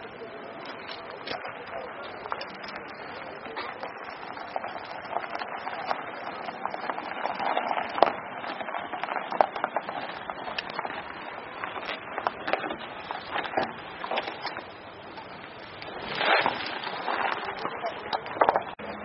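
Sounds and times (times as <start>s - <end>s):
footsteps crunching on gravel: 0.0s - 18.8s
steady outdoor hiss: 0.0s - 19.0s.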